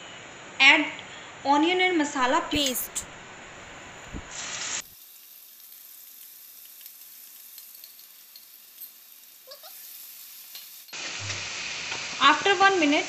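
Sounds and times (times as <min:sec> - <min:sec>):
light crackles: 0:02.6 - 0:12.1
paste sizzling in hot oil: 0:03.6 - 0:13.0.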